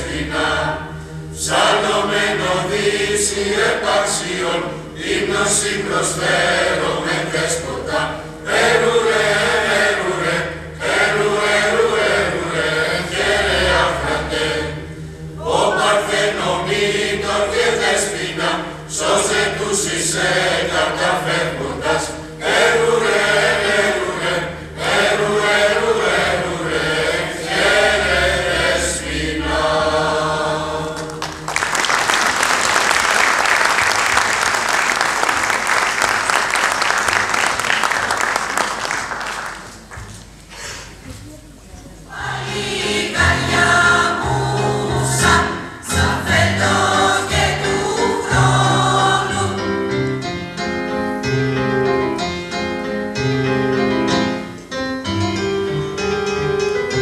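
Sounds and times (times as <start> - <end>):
mixed choir singing: 0.0 - 37.3, 42.0 - 50.4
audience applause: 31.0 - 40.2.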